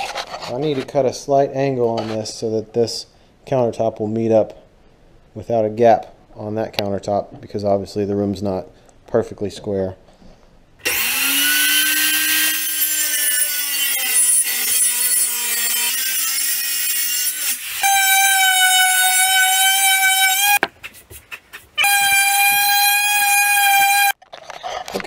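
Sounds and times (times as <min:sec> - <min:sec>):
circular saw cutting wood: 0:10.8 - 0:20.7, 0:21.8 - 0:24.2.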